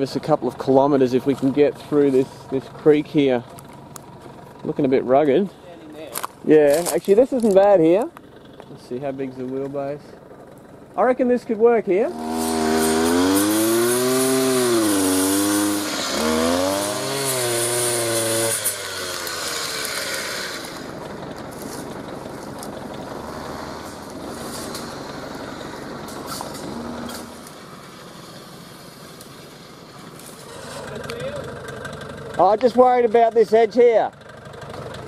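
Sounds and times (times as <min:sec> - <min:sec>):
brush cutter engine revving: 0:11.9 - 0:35.0.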